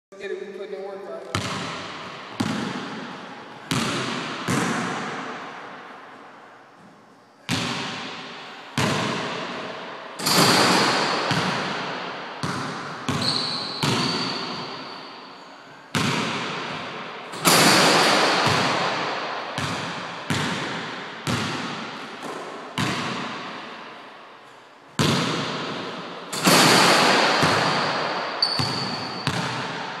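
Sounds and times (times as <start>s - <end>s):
basketball bouncing on hardwood floor: 1.3s - 5.3s, 7.5s - 9.6s, 10.2s - 14.8s, 15.9s - 23.7s, 25.0s - 30.0s.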